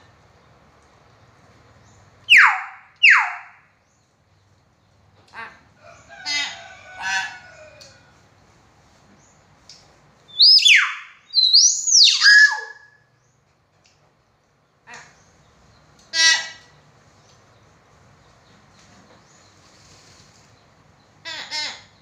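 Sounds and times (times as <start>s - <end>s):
myna whistles and chattering calls: 2.3s - 3.5s, 10.3s - 13.0s.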